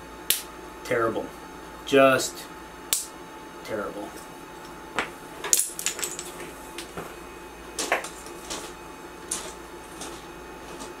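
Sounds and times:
steady background hum: 0.0 - 11.0.

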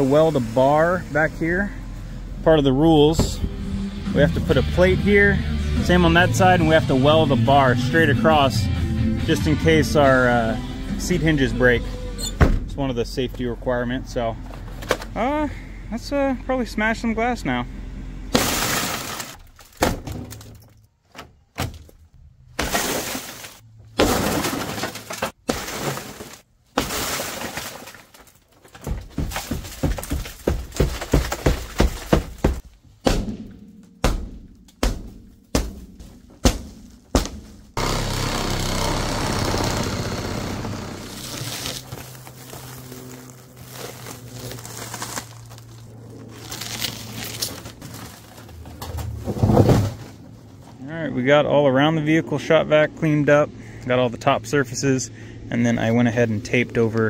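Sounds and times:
blows smashing car window: 18.3 - 20.5
glass shattering: 18.3 - 20.7, 22.6 - 28.3.

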